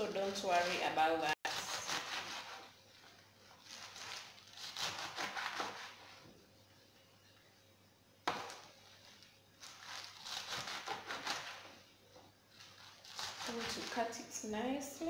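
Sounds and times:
knife chopping on cutting board: 4.8s - 6.0s.

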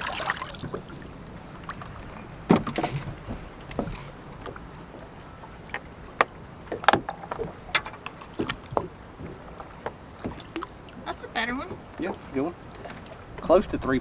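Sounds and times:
wind and water hiss: 0.0s - 14.0s
fish knocking against boat: 2.1s - 5.1s, 5.7s - 10.8s.

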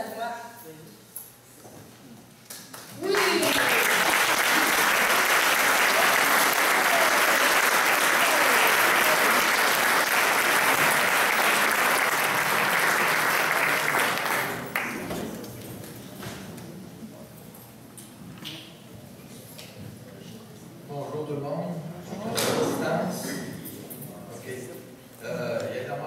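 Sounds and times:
audience applauding: 3.0s - 15.1s.

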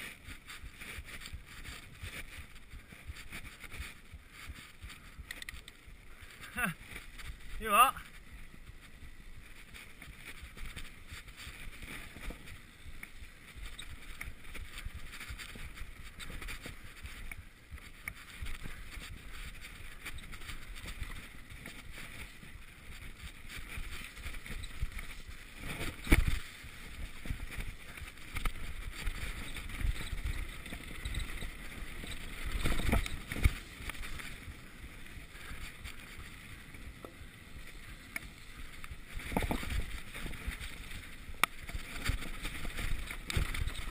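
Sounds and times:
bike rattle: 8.1s - 43.9s.

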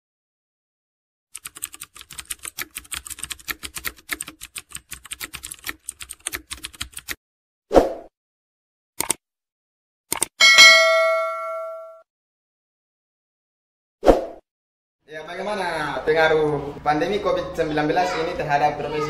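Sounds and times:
keyboard typing clicks: 9.0s - 9.2s, 10.1s - 10.4s.

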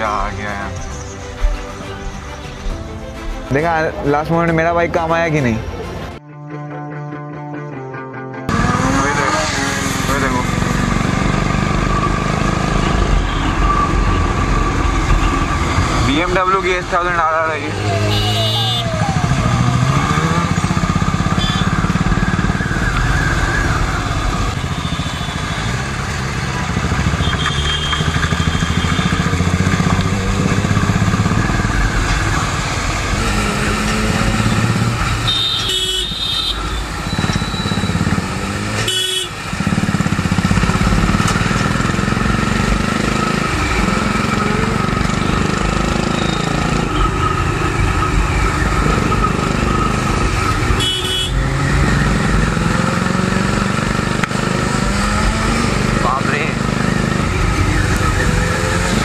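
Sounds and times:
road and wind noise: 0.0s - 6.2s, 8.5s - 59.0s
motorcycle engines accelerating: 8.5s - 35.4s, 36.6s - 59.0s
vehicle horn honks: 18.0s - 19.0s, 21.3s - 21.8s, 27.1s - 29.5s, 35.2s - 38.0s, 38.8s - 39.4s, 50.8s - 51.5s.

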